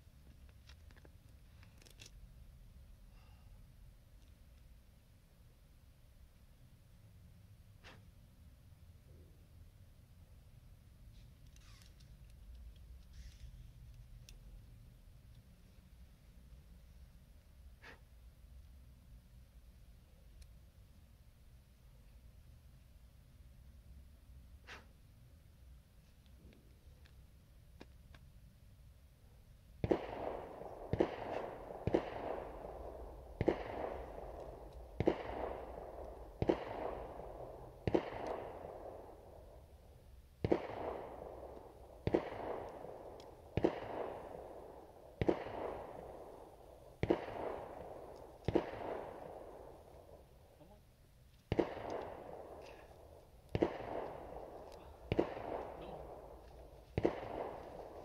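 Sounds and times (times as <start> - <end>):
gunshots with echo: 29.8 - 39.7, 40.4 - 50.2, 51.5 - 58.0.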